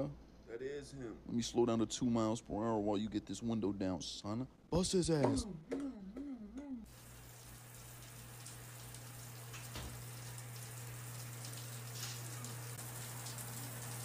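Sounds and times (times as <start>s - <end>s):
shower water spraying: 6.9s - 14.0s.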